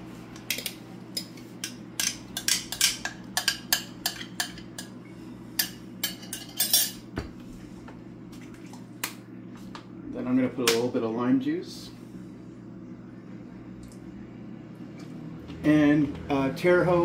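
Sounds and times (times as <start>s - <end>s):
spoon clinking against bowls: 0.5s - 4.9s, 5.6s - 7.0s.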